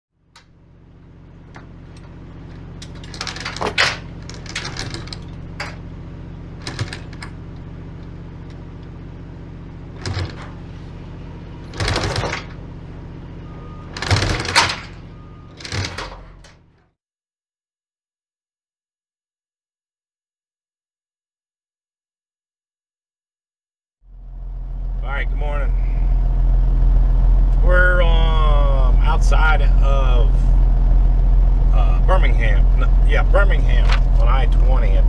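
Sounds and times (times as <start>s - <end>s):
steady low hum: 0.3s - 16.5s, 24.1s - 35.0s
chain clanking and rattling: 1.4s - 5.9s, 6.6s - 7.6s, 10.0s - 10.7s, 11.6s - 12.6s, 13.9s - 16.6s.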